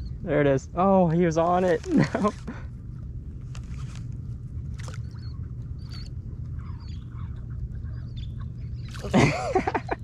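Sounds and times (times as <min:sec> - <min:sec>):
low rumble: 0:00.0 - 0:10.0
high squeaky chirps: 0:05.0 - 0:09.1.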